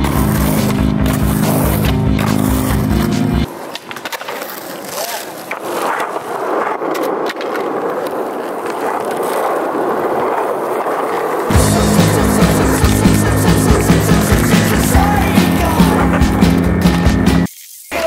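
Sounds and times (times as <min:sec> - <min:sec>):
skateboard clacks: 0:00.0 - 0:17.2
skateboard wheels rolling: 0:00.0 - 0:18.0
background music with a beat: 0:11.5 - 0:17.5.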